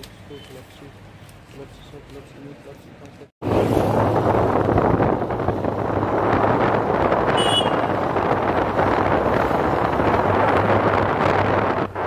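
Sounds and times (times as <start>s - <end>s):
vehicle engine and road noise: 0.0s - 12.0s
wind buffeting microphone: 3.4s - 12.0s.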